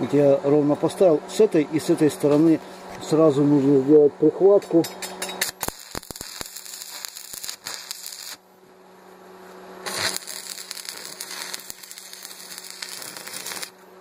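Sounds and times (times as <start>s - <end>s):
welding arc crackling and hissing: 5.0s - 8.5s, 9.4s - 14.0s.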